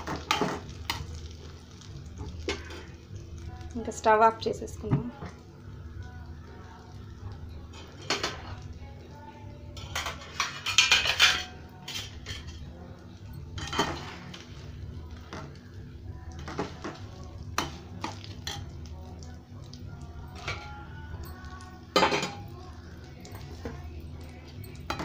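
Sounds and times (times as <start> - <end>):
spoon scraping and clinking a pan: 9.8 - 12.7, 13.5 - 14.4.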